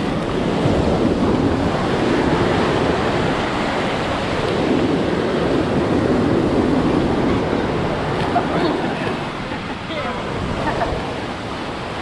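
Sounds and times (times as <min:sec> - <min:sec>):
ocean surf breaking on beach: 0:00.0 - 0:12.0
wind on microphone: 0:00.0 - 0:12.0.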